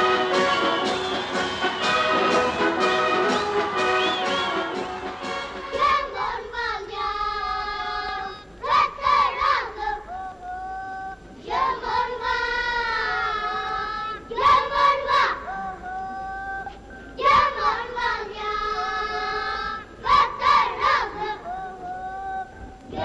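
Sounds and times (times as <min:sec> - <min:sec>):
child singing: 0:05.7 - 0:23.0.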